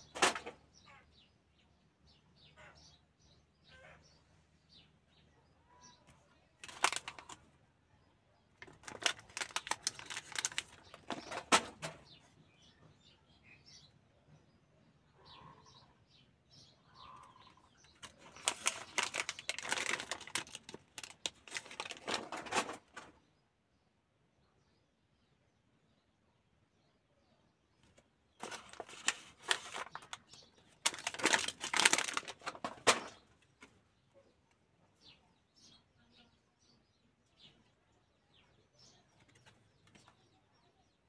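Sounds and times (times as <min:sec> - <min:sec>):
foil cards rustling and sliding: 0:06.6 - 0:07.4, 0:08.6 - 0:11.8, 0:17.9 - 0:23.1, 0:28.4 - 0:33.2
faint bird chirps: 0:12.1 - 0:19.3.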